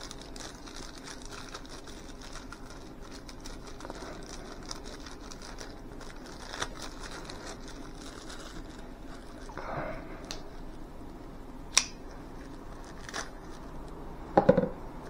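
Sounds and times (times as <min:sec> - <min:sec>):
plastic bag crinkling: 0:00.0 - 0:09.6, 0:12.1 - 0:14.0.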